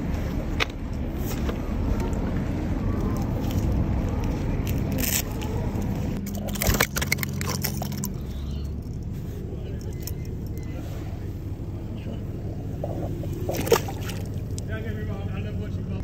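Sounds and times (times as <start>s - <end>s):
low rumble on microphone: 0.0s - 16.0s
handling clicks and scrapes: 0.1s - 11.3s.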